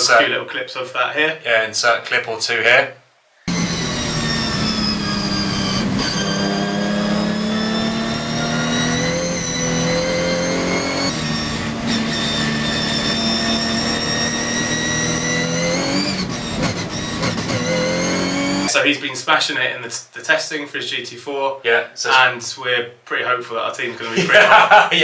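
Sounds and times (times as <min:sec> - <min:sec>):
race car engine pulling hard: 0:03.5 - 0:18.7.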